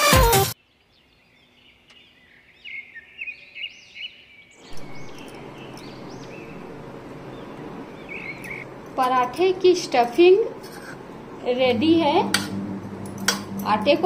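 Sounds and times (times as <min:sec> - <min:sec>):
small birds chirping: 0:00.6 - 0:11.8
steady background noise: 0:04.6 - 0:14.0.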